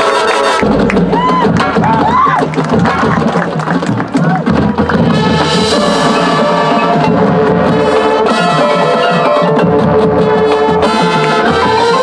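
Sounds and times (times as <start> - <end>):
drums: 0.0 - 12.0
mallet percussion: 0.6 - 10.1
brass sustained chords: 4.9 - 12.0.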